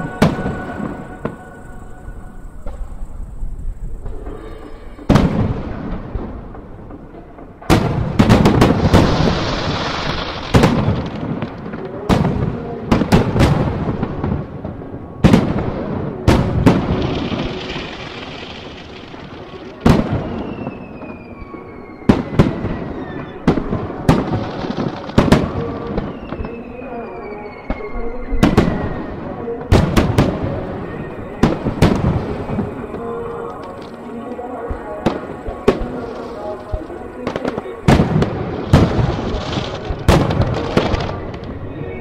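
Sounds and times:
falling firework whistles: 0.0 - 6.1, 7.7 - 11.3, 16.3 - 34.1
fireworks crackling and hissing: 0.0 - 42.0.

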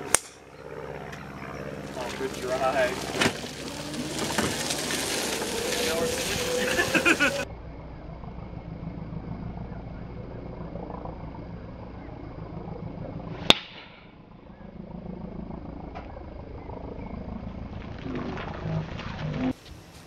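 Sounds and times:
steady low rumble: 0.0 - 20.0
golf club striking ball: 13.4 - 14.0.

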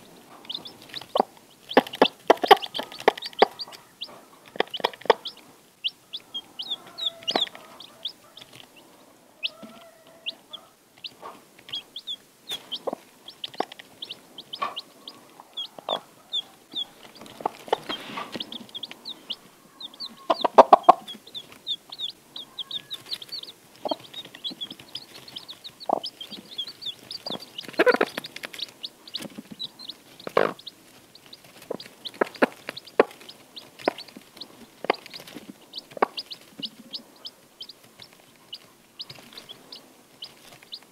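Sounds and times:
chicks peeping: 0.0 - 40.9
pecking in wood shavings: 0.2 - 40.9
hen clucking low: 0.3 - 8.4, 9.4 - 30.8.

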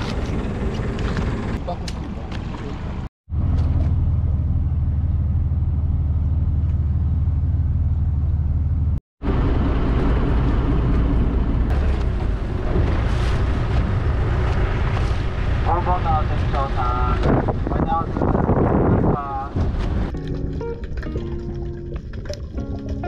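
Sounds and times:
boat engine humming: 0.0 - 18.5
rush of boat under way: 9.2 - 20.1.

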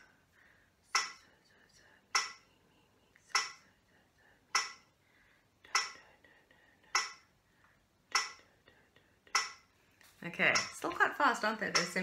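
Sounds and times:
metronome clicking: 1.0 - 1.2, 2.2 - 2.4, 3.3 - 3.6, 4.6 - 4.8, 5.7 - 6.0, 7.0 - 7.2, 8.1 - 8.4, 9.3 - 9.6, 10.5 - 10.9, 11.7 - 12.0.

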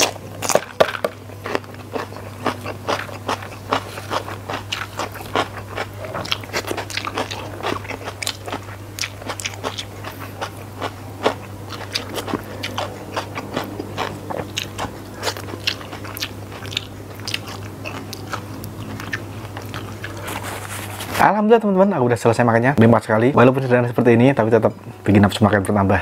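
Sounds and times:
steady low hum: 0.0 - 26.0
chewing and lip smacks: 1.5 - 20.4.

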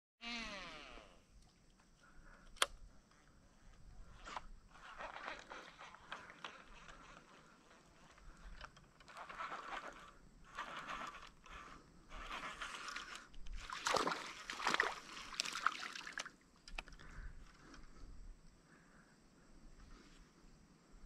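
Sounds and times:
water sloshing: 12.2 - 17.0
splash on water surface: 13.7 - 16.3.

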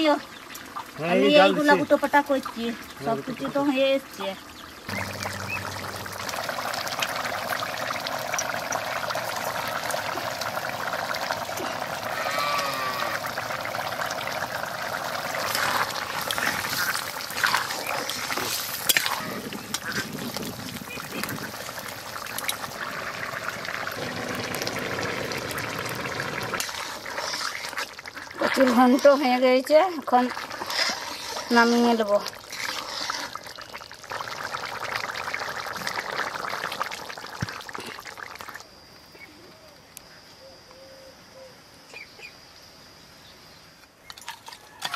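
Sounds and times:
curry bubbling in a pan: 2.0 - 38.7
spatula scraping a pan: 15.5 - 20.3, 30.5 - 33.4.

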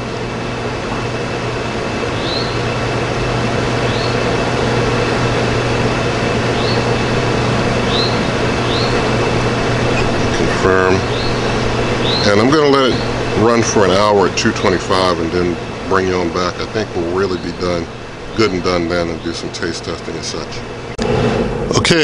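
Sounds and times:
machine hum and rushing: 0.0 - 22.0.

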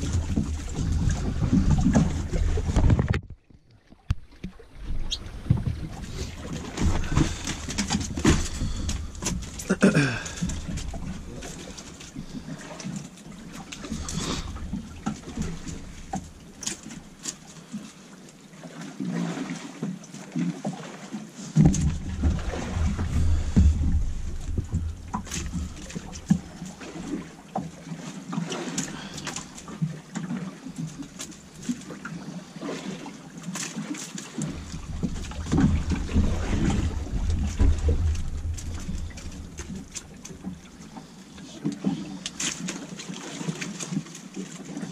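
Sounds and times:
low rumble: 21.7 - 26.7, 34.6 - 40.2.

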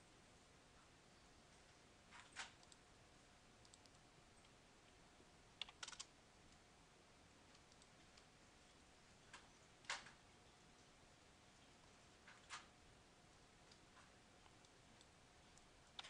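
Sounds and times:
faint keyboard and mouse clicks: 2.1 - 2.9, 3.6 - 4.6, 5.6 - 6.6, 7.4 - 8.3, 9.3 - 10.2, 13.6 - 16.0.

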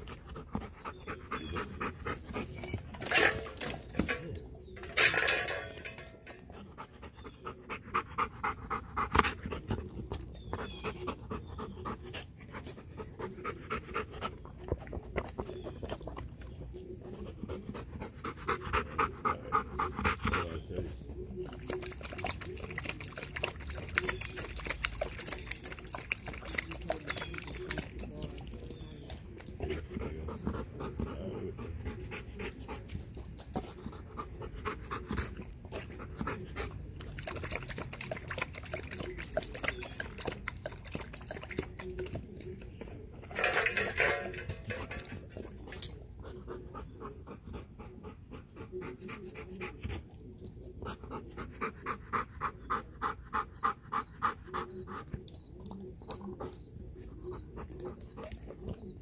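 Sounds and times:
dog panting heavily: 0.0 - 3.4, 6.4 - 21.4, 28.7 - 42.0, 44.6 - 59.0.

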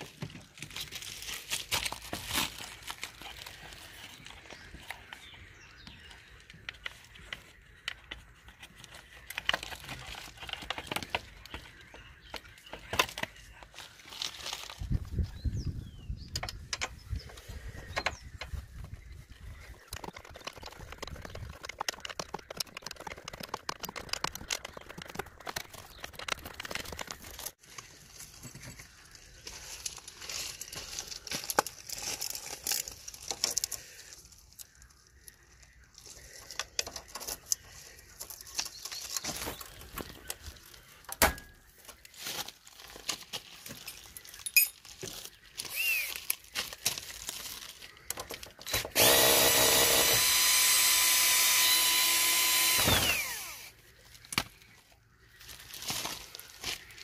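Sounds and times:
cordless drill running: 45.7 - 46.1, 48.7 - 53.7.

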